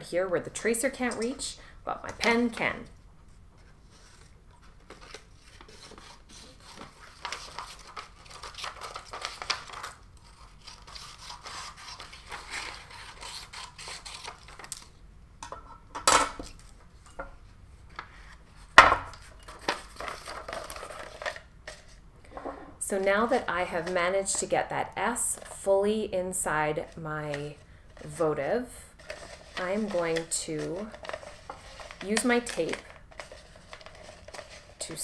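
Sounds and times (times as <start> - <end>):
paper rustling: 3.6 - 13.4, 19.2 - 22.0, 29.0 - 34.8.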